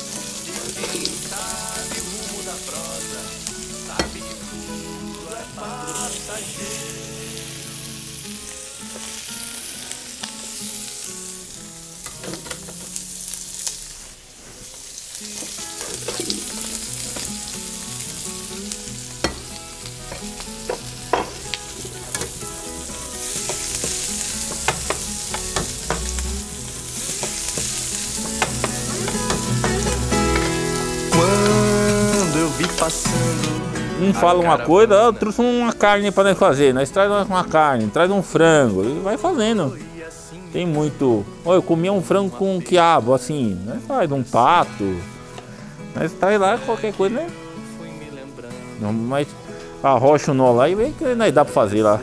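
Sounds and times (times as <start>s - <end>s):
pork fat sizzling in a pan: 0.0s - 33.6s.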